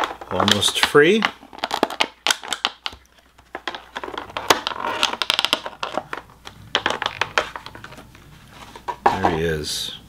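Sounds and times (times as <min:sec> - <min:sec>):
plastic packaging crinkling: 0:00.0 - 0:08.9.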